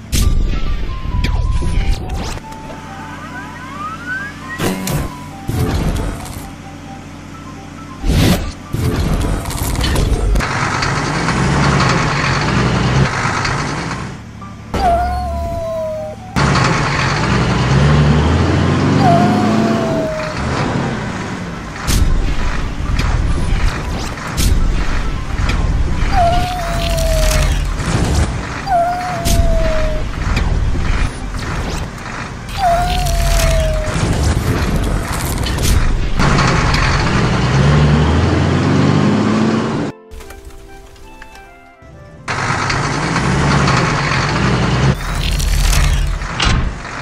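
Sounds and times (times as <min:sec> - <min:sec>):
truck engine accelerating: 0:00.6 - 0:47.0
short falling whine: 0:14.8 - 0:16.4.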